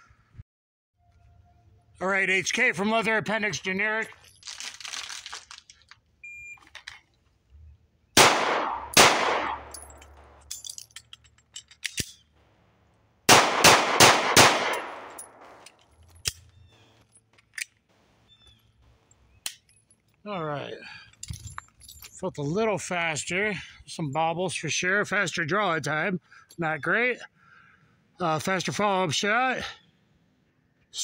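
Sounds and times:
pistol shots with ringing echo: 8.2s - 10.4s, 13.3s - 15.7s.

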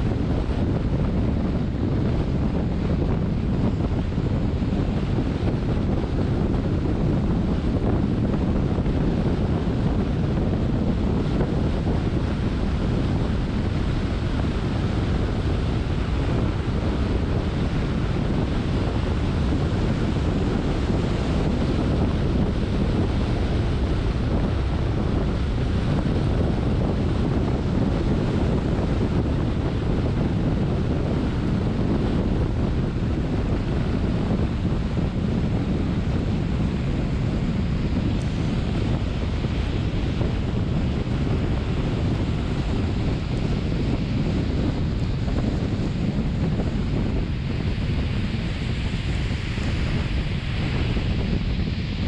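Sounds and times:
car driving on wet road: 0.0s - 52.0s.

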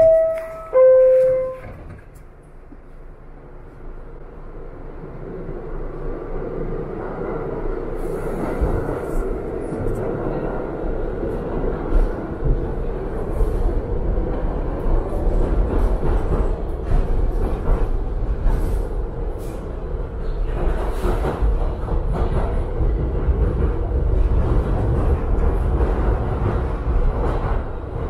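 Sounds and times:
subway train rumbling on rails: 0.0s - 28.0s
clicks and clatter from track: 14.3s - 28.0s.

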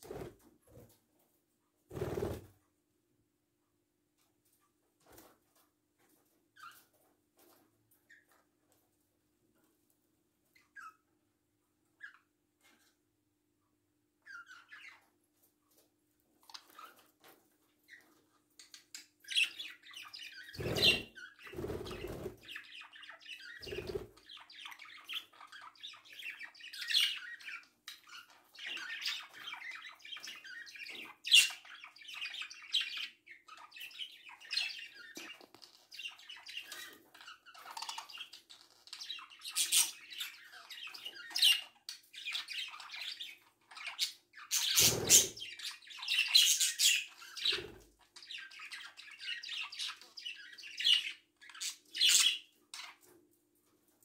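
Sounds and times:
parrots chirping and squawking: 14.2s - 15.1s, 18.7s - 53.1s.

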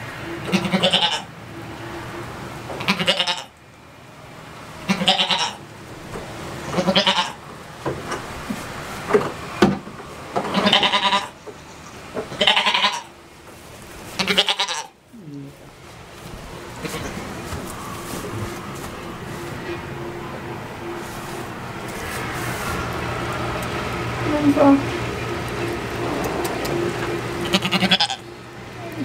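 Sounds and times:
goat bleating: 0.4s - 1.3s, 2.8s - 3.5s, 4.9s - 5.6s, 6.8s - 7.4s, 10.5s - 13.1s, 14.1s - 15.6s, 27.4s - 28.2s.

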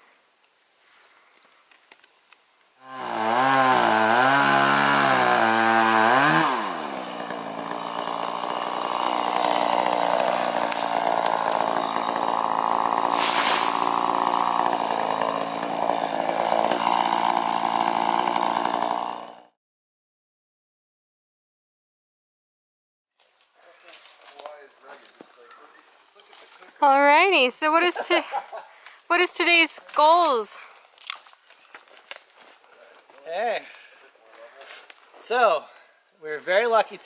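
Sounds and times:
chainsaw running: 2.8s - 19.6s, 27.6s - 30.6s.

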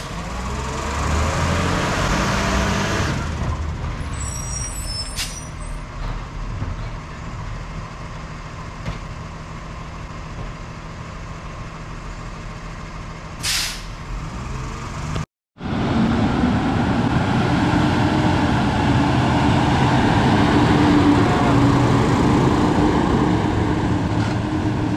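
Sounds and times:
air brake hiss: 13.4s - 14.0s.

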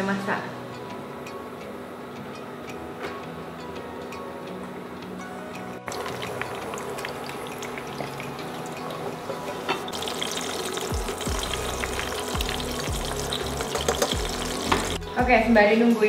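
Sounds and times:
fish sizzling in hot oil: 5.9s - 15.0s.

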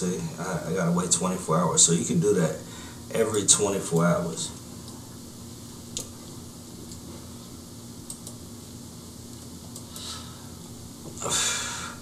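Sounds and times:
low room hum: 0.0s - 12.0s
computer mouse clicks: 8.0s - 8.4s.

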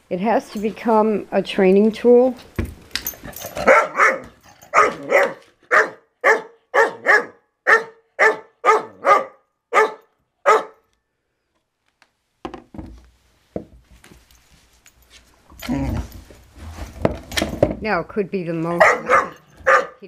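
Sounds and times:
dog barking: 3.6s - 10.8s, 18.8s - 20.0s
puppy barking: 3.6s - 10.8s, 18.8s - 20.0s.

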